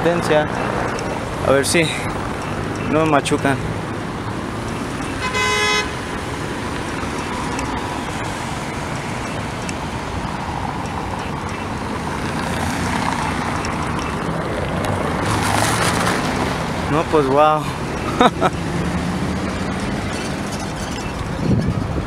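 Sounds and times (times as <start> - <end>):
road traffic passing: 0.0 - 22.0
vehicle horn toot: 5.1 - 6.0.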